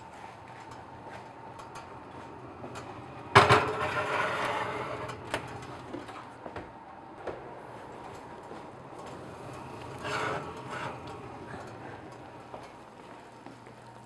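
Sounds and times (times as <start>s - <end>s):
metal oven rack rattling: 0.7s - 6.3s, 9.2s - 12.4s
oven door clunk: 2.7s - 5.8s.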